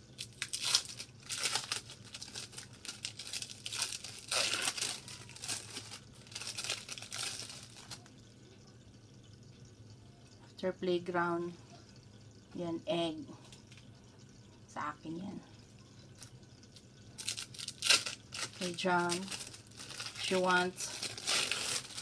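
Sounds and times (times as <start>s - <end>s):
plastic wrapping crinkling: 0.2s - 8.2s, 17.2s - 22.0s.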